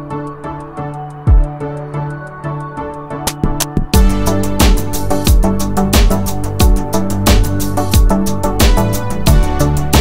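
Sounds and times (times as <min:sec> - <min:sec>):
deep kick drum: 0:03.4 - 0:10.0.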